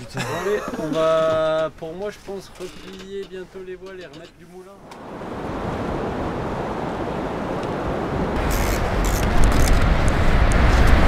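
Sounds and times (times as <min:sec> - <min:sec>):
waves breaking on beach: 0:04.8 - 0:11.0.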